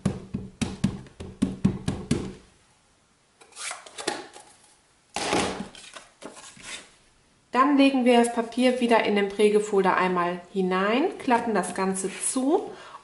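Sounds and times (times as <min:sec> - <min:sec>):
ink pad tapping on plastic: 0:00.0 - 0:02.4.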